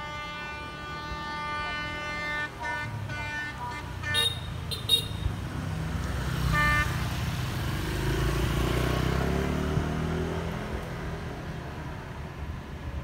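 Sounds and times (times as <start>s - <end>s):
motorbike horn toot: 0.0s - 5.3s
motorbike engine passing: 5.6s - 11.2s.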